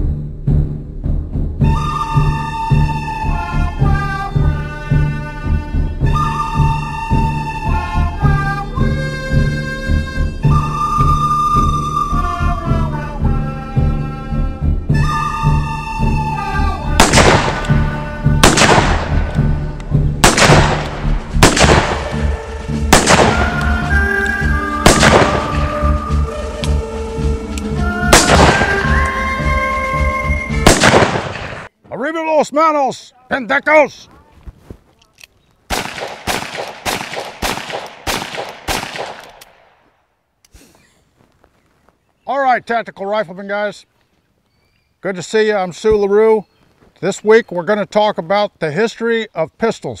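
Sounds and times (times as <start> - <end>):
background music with steady beat: 0.0 - 31.3
revolver shots echoing: 17.0 - 17.8, 18.4 - 19.4, 20.2 - 22.3, 23.0 - 23.7, 24.9 - 25.8, 28.2 - 28.9, 30.7 - 31.7.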